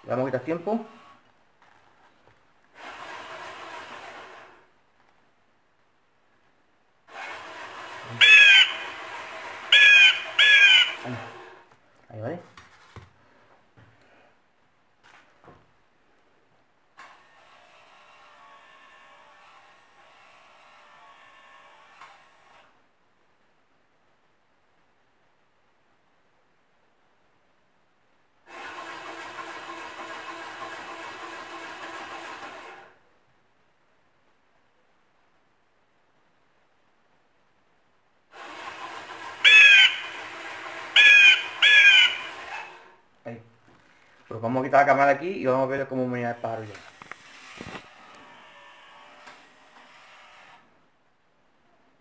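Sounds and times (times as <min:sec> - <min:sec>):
small electric motor running: 0:07.1 - 0:11.6, 0:17.1 - 0:22.6, 0:38.4 - 0:42.9, 0:46.7 - 0:50.6
bird squawks through loudspeaker: 0:08.2 - 0:08.8, 0:09.7 - 0:11.0, 0:39.4 - 0:40.0, 0:41.0 - 0:42.3.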